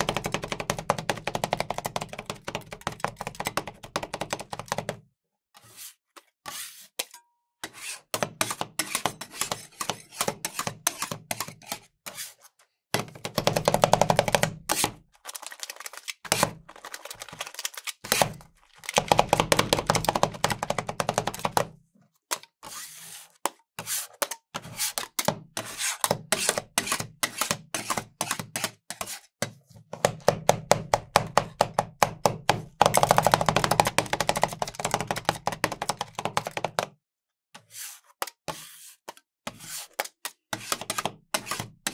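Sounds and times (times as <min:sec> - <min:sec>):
metal spatulas chopping on steel: 0:06.5 - 0:12.2, 0:23.9 - 0:29.2.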